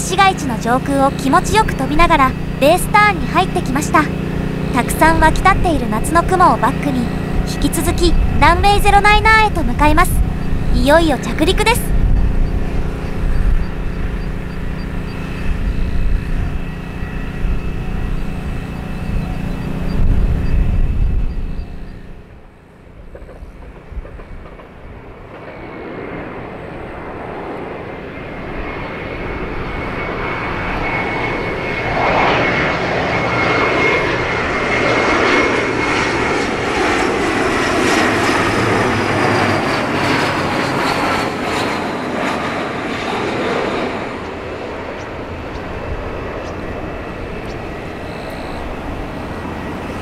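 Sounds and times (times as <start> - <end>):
jet engines roaring: 0.0 - 50.0.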